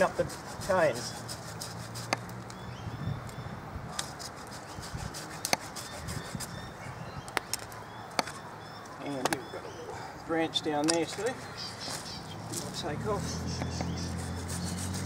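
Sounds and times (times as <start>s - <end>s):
pruning shears snapping wood: 10.8s - 11.3s.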